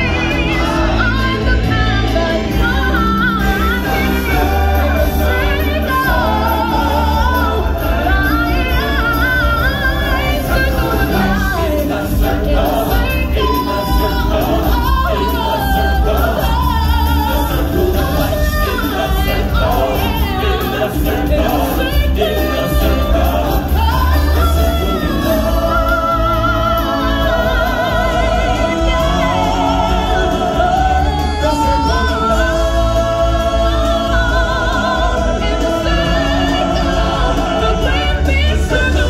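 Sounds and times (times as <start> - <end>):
amplified backing music with bass: 0.0 - 39.0
singers holding long notes: 0.0 - 39.0.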